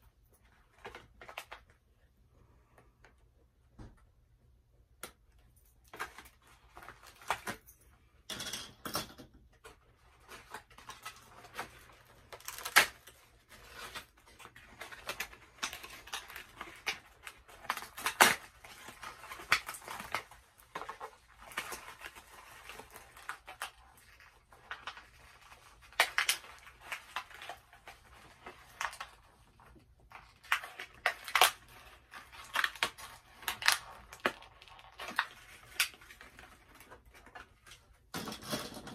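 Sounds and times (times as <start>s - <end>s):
cardboard and plastic rustling: 9.4s - 38.9s.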